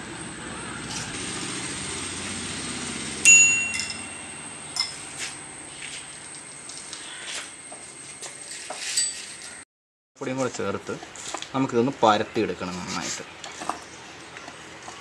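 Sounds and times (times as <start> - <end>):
bicycle bell dings: 3.2 - 5.2, 8.8 - 9.4.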